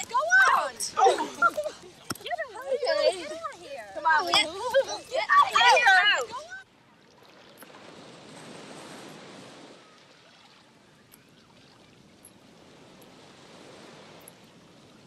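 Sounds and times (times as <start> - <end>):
ocean surf washing in: 7.7 - 10.1.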